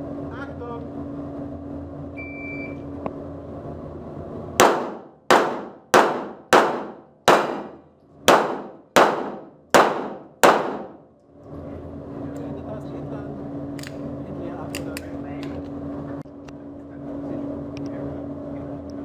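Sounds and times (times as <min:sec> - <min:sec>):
pistol shots echoing: 0:04.6 - 0:11.0.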